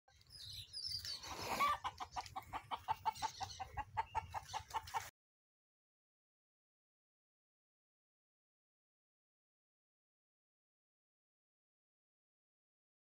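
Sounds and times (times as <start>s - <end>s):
bird calling: 0.1s - 5.0s.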